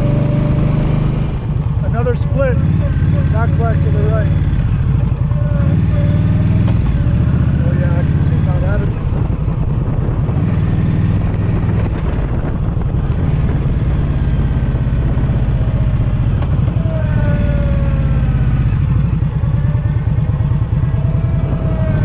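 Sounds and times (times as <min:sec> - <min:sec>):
motorcycle engine running: 0:00.0 - 0:22.0
wind noise: 0:04.5 - 0:22.0.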